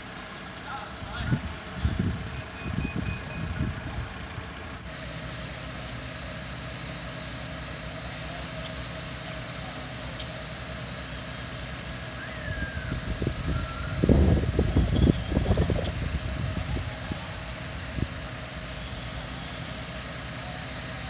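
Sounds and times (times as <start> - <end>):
fire engine idling hum: 0.0 - 21.0
low rumbling: 7.9 - 21.0.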